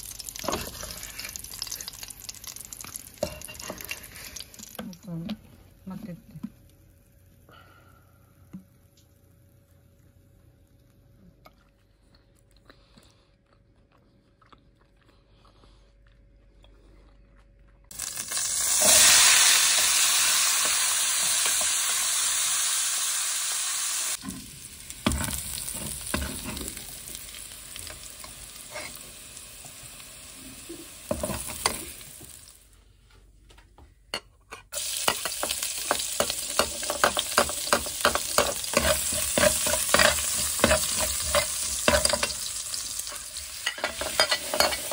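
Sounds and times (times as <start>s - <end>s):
food sizzling in hot oil: 0.0s - 5.0s, 17.9s - 32.7s, 34.7s - 44.9s
spatula scraping and knocking pan: 35.0s - 42.5s, 43.1s - 44.9s.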